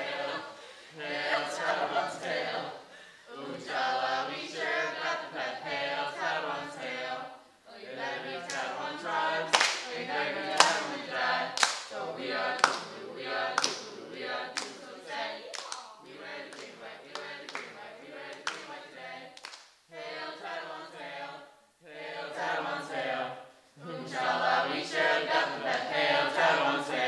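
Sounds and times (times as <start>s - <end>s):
group singing: 0.0s - 27.0s
hand claps: 8.5s - 8.7s, 9.5s - 9.9s, 10.6s - 10.9s, 11.6s - 12.0s, 12.6s - 13.0s, 13.6s - 14.0s, 14.6s - 14.8s, 15.5s - 17.8s, 18.4s - 18.8s, 19.4s - 19.8s.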